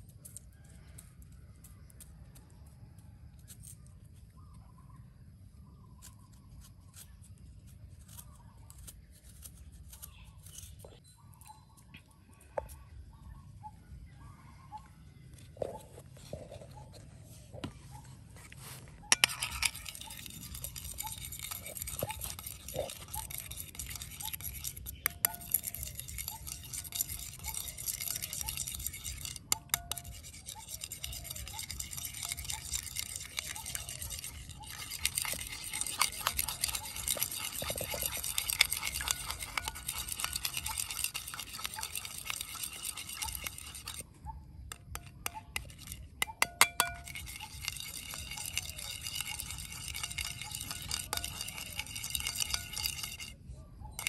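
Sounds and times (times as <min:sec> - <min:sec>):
knife beating in ceramic bowl: 0:19.1 - 0:44.0, 0:44.7 - 0:53.3.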